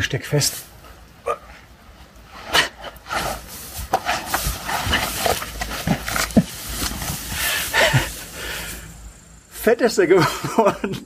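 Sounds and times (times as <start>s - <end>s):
clothes scraping against stone: 1.6s - 8.4s.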